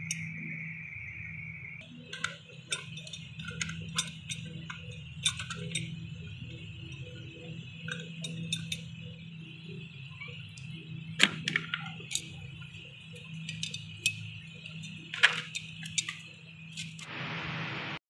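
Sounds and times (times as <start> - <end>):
wrench clicking against metal: 2.1 - 6.0
steady hiss: 12.1 - 18.0.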